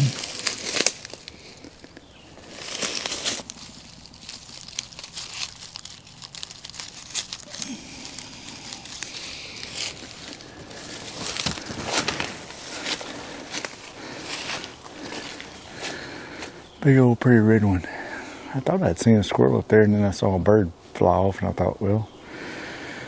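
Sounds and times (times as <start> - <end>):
footsteps through dry leaves: 0.0 - 16.8.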